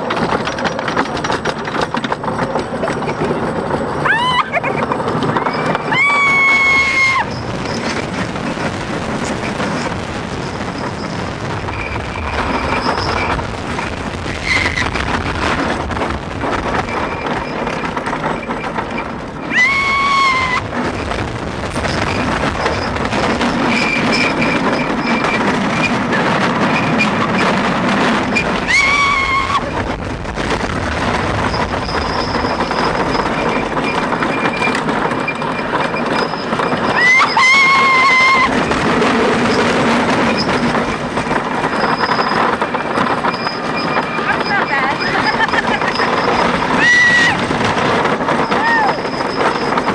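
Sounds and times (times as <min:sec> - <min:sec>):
roller coaster rumbling on track: 0:00.0 - 0:49.9
riders screaming: 0:04.0 - 0:04.7, 0:05.3 - 0:07.4, 0:14.3 - 0:14.9, 0:19.4 - 0:20.8, 0:28.6 - 0:29.8, 0:36.8 - 0:38.7, 0:45.2 - 0:47.6, 0:48.3 - 0:49.6.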